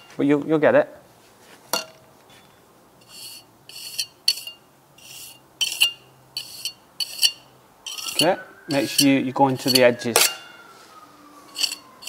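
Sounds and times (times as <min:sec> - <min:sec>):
trowel scraping mortar: 0:03.0 - 0:10.3, 0:11.6 - 0:11.8.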